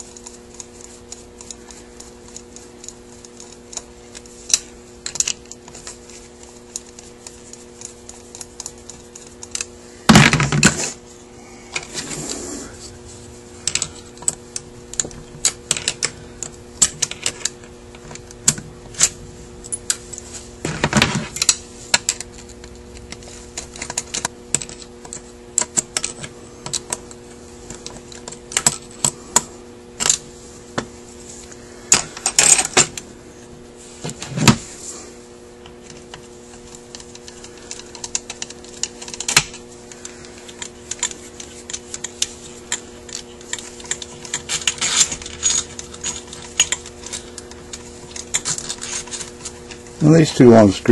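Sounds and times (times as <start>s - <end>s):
screwdriver clicking on metal: 0.0s - 9.7s, 35.9s - 49.5s
steady low hum: 0.0s - 50.9s.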